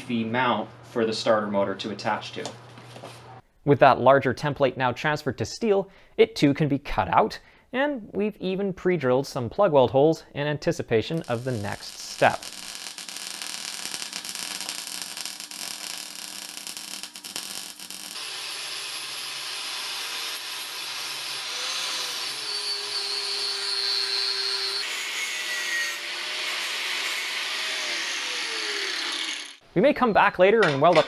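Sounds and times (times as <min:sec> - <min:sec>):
electric welder crackling: 0:11.1 - 0:25.2
angle grinder whining on steel: 0:12.4 - 0:29.6.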